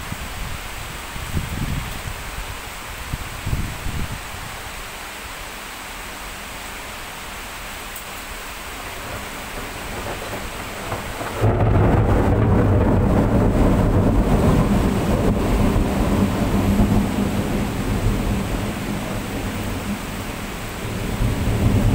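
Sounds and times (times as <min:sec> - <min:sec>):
heavy rain hissing: 0:00.0 - 0:21.9
thunder rumbling: 0:09.0 - 0:21.9.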